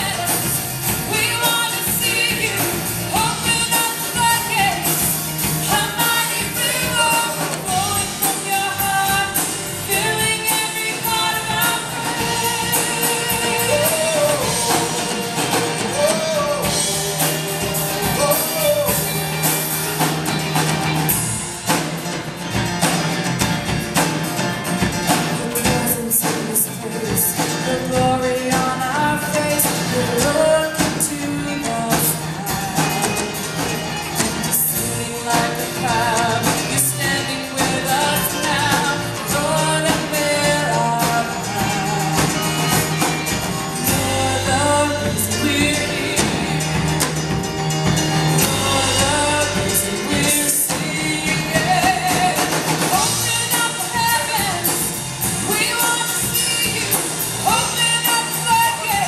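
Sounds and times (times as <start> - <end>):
drum kit: 0.0 - 59.0
guitars: 0.0 - 59.0
keyboard: 0.0 - 59.0
people singing: 5.6 - 19.8, 34.5 - 47.1, 48.3 - 59.0.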